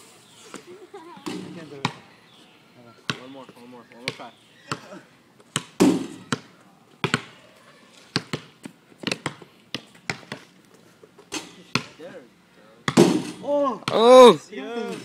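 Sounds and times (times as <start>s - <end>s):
basketball bouncing on asphalt: 1.2s - 2.0s, 3.1s - 4.9s, 5.5s - 7.4s, 8.1s - 10.6s, 11.7s - 12.0s, 12.8s - 14.1s.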